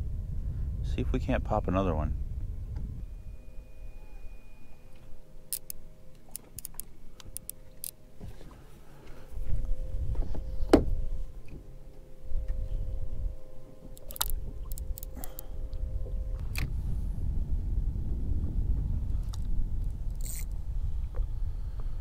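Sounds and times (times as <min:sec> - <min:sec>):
low rumble: 0:00.0 - 0:22.0
clicks and knocks of fishing tackle: 0:05.0 - 0:08.6, 0:13.9 - 0:15.5.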